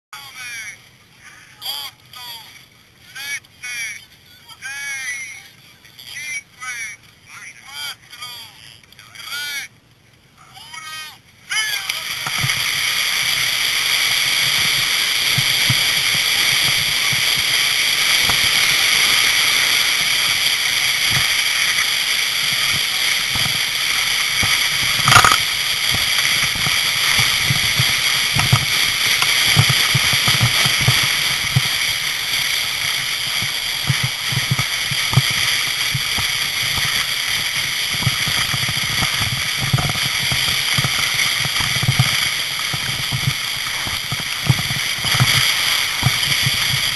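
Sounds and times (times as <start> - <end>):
sleds sliding on snow: 11.6 - 46.9
low bumps: 14.0 - 46.9.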